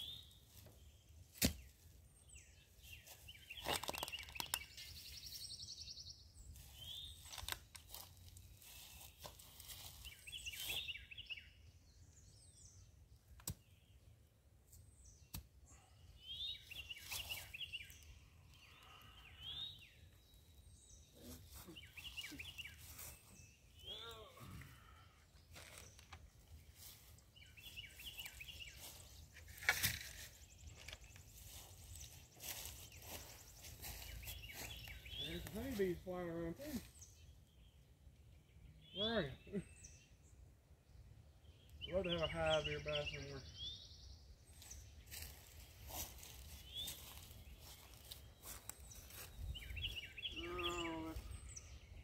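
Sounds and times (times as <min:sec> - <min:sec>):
songbirds chirping: 0:00.0 - 0:52.0
footsteps through grass and leaves: 0:02.6 - 0:05.6, 0:06.4 - 0:11.2, 0:16.5 - 0:18.0, 0:21.2 - 0:24.0, 0:24.8 - 0:37.0, 0:44.5 - 0:51.4.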